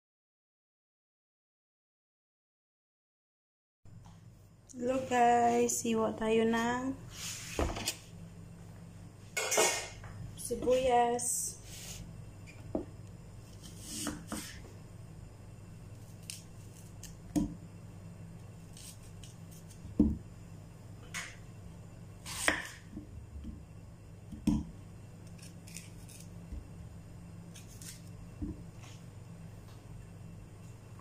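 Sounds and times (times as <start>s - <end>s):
steady low hum: 3.9s - 31.0s
knife chopping on wooden board: 13.6s - 14.6s, 22.3s - 23.6s.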